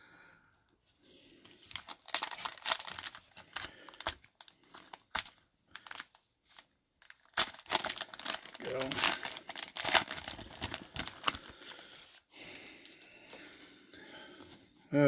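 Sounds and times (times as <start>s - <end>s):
foil wrapper crinkling and tearing: 1.6s - 12.0s.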